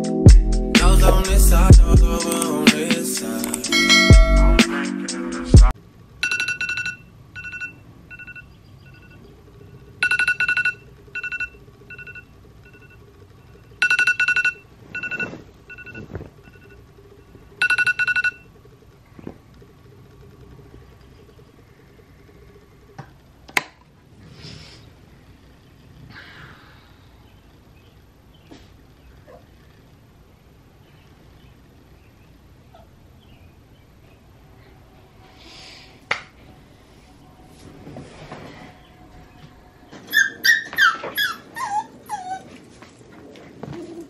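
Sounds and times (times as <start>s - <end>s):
electronic alarm beeping: 6.2s - 16.8s, 17.6s - 18.5s.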